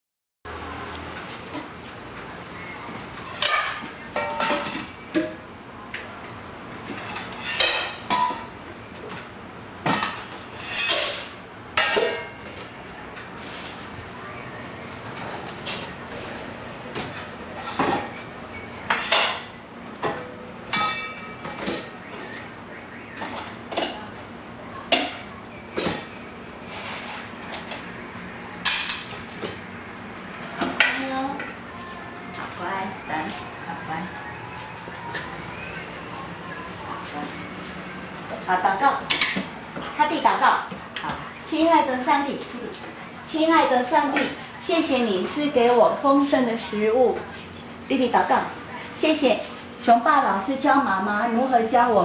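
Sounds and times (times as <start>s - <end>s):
dishes and bowls clattering: 3.4s - 5.4s, 6.8s - 8.6s, 9.8s - 12.7s, 17.0s - 18.2s, 18.9s - 22.0s.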